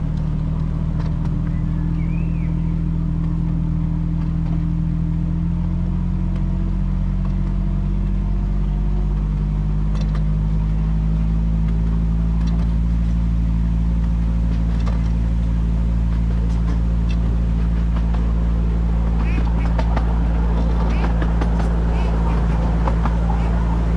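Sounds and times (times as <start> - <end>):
locomotive engine running: 0.0 - 23.9.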